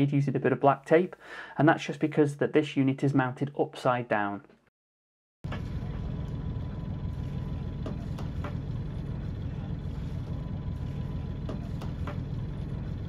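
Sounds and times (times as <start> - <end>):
diesel engine idling: 5.5 - 13.0.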